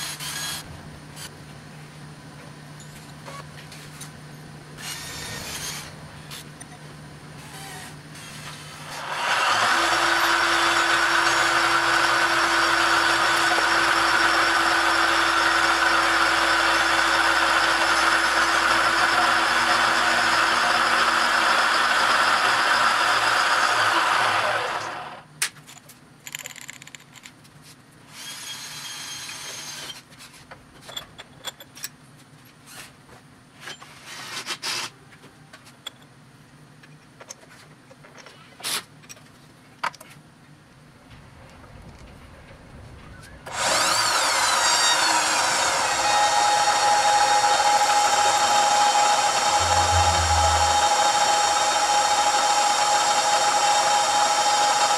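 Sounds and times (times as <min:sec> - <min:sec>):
milling machine cutting steel: 0:08.7 - 0:25.2, 0:43.5 - 0:54.9
spindle hum: 0:49.4 - 0:51.9.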